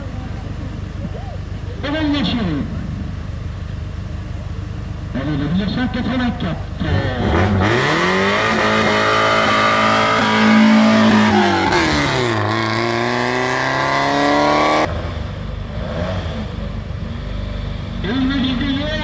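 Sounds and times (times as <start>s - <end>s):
low engine rumble: 0.0s - 8.7s, 14.8s - 19.0s
car engine revving: 0.0s - 19.0s.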